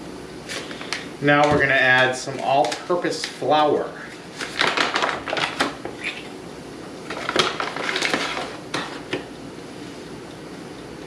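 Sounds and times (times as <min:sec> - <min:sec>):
paper bag crinkling: 0:00.5 - 0:03.5, 0:04.1 - 0:06.3, 0:07.0 - 0:08.6.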